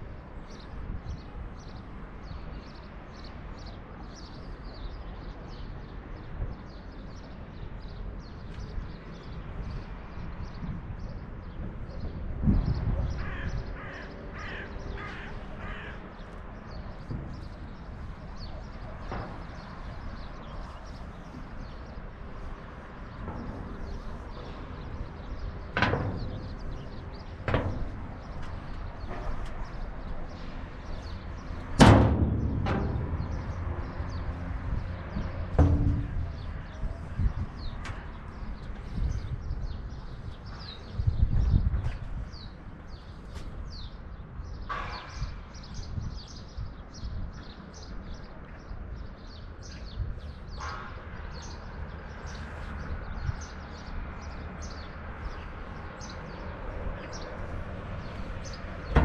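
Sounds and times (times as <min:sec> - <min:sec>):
wind buffeting microphone: 0:00.0 - 0:59.0
small birds chirping: 0:00.4 - 0:59.0
bird cawing: 0:13.2 - 0:16.2.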